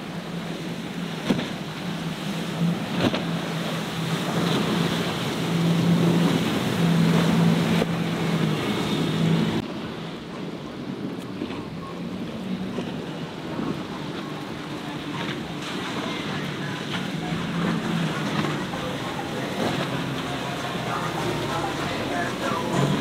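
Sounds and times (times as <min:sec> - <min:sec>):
outboard engines droning: 0:00.0 - 0:23.0
spray and waves rushing: 0:00.0 - 0:23.0.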